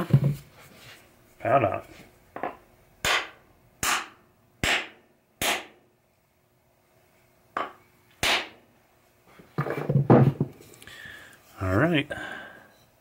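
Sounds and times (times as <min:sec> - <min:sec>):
hammer scuffing and knocking: 0:00.0 - 0:01.0, 0:09.3 - 0:10.7.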